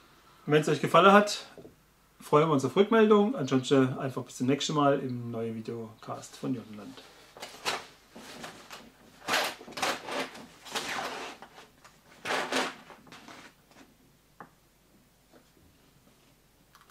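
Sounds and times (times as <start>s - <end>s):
curtains sliding and scraping: 7.0s - 13.9s.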